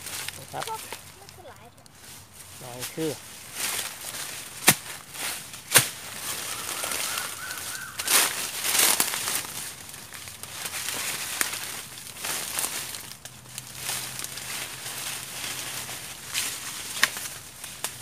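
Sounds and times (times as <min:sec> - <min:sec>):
dry leaves crunching and rustling: 0:00.0 - 0:18.0
faint high bird call: 0:06.2 - 0:08.3.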